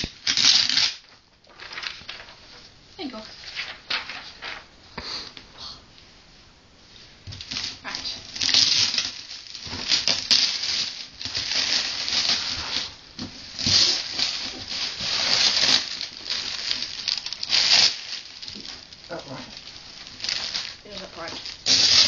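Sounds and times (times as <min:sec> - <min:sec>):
wrapping paper crinkling: 0:00.0 - 0:04.7, 0:06.8 - 0:22.0.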